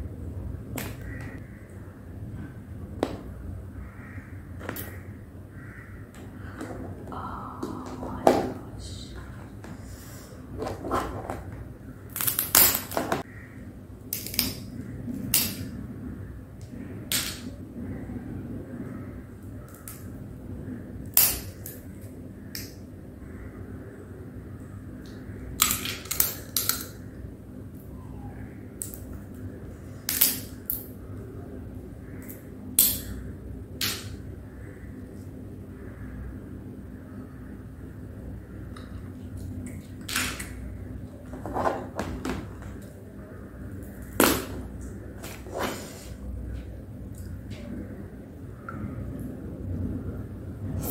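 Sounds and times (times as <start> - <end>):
low steady hum: 0.0 - 50.9
crab shell crackling and crunching: 12.1 - 13.1, 25.5 - 27.0
prawn shell cracking: 12.1 - 13.2.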